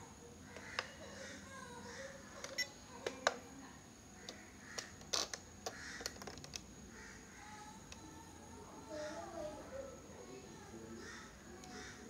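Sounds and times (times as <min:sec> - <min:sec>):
plastic clicks of radio transmitter: 0:00.5 - 0:01.0, 0:02.4 - 0:03.4, 0:04.2 - 0:06.7.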